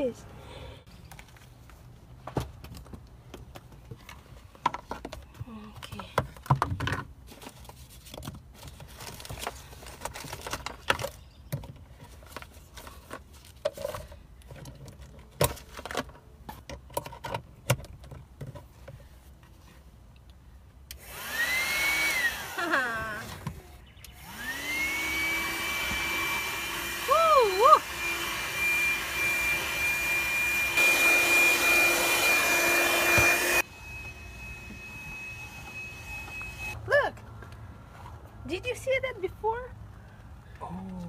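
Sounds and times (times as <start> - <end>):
objects handled with knocks and clicks: 1.0 - 20.4
handheld vacuum running: 20.9 - 23.6, 24.2 - 36.8.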